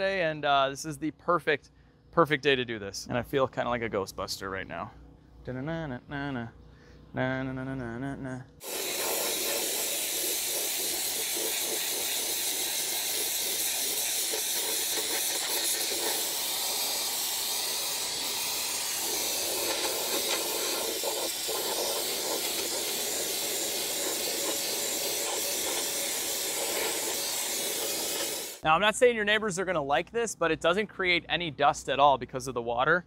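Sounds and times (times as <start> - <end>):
wet sandblasting hiss: 8.6 - 28.6.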